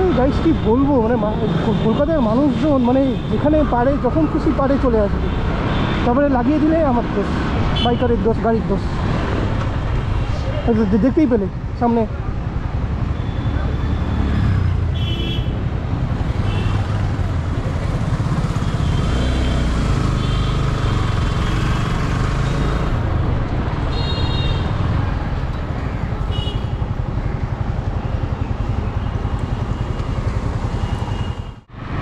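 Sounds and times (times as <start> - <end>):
traffic horn beeps: 23.9 - 24.8.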